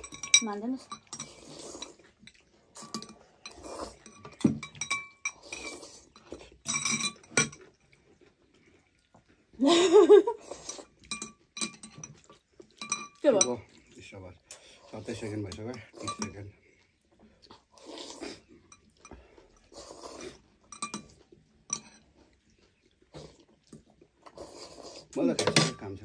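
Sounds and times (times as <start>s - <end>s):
metal cutlery clinking on glass bowls: 0.0s - 7.8s, 10.6s - 13.7s, 15.0s - 16.5s, 20.7s - 22.1s, 25.2s - 26.0s
noodles being slurped: 0.0s - 25.4s.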